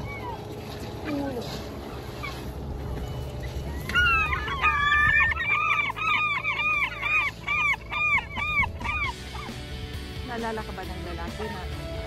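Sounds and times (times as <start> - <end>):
gull crying: 0.0 - 0.5, 3.4 - 9.8
wind: 0.0 - 12.0.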